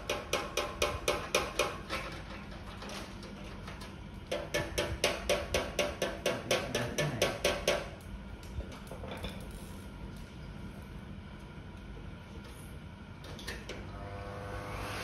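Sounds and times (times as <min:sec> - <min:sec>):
rapid metallic knocks with ringing: 0:00.0 - 0:01.9, 0:04.3 - 0:07.9.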